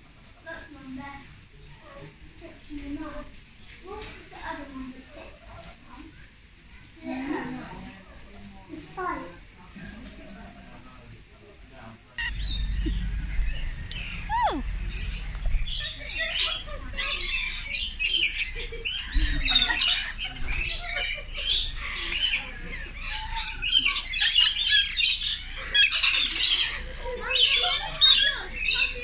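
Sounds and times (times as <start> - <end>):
lorikeets screeching and chattering: 12.2 - 29.0.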